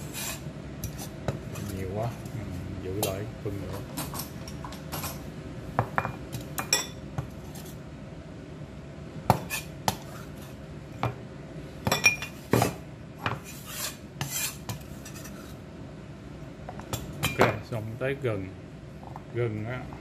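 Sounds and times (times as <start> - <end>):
cleaver scraping cutting board: 0.0 - 1.8, 9.3 - 10.6, 13.3 - 15.6.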